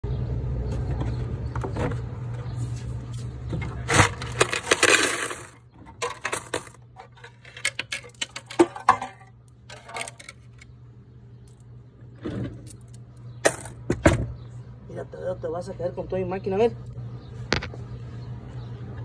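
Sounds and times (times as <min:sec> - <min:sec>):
steady low hum: 0:00.0 - 0:19.0
coins clinking and rattling: 0:04.0 - 0:09.1, 0:09.7 - 0:10.6, 0:12.6 - 0:13.8
rush of sliding coins: 0:04.3 - 0:05.6.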